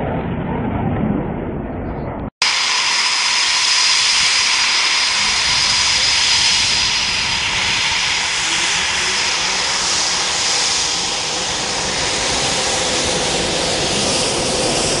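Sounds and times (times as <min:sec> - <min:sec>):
high thin whistle: 0:02.4 - 0:12.8
jet engine whine and hiss: 0:02.4 - 0:15.0.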